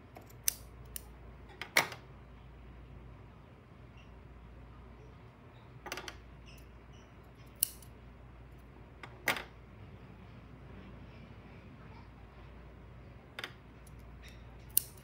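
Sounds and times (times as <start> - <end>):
scissors snipping yarn: 0.1 - 1.1, 7.5 - 7.9, 13.8 - 15.0
scissors clicking on wooden table: 0.2 - 1.1, 7.5 - 7.9, 13.4 - 15.0.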